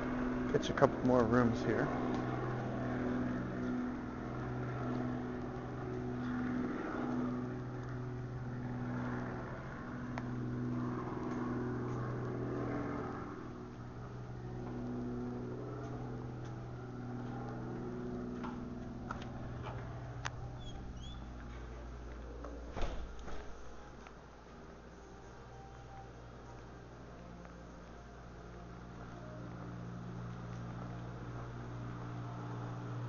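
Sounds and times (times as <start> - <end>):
low mechanical hum: 0.0 - 33.0.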